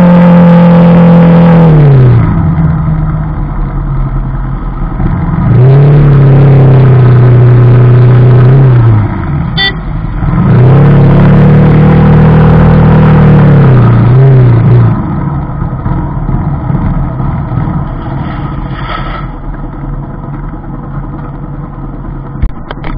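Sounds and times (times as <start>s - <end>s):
motorcycle engine revving: 0.0s - 3.0s, 4.8s - 22.9s
short high beep: 9.6s - 9.9s.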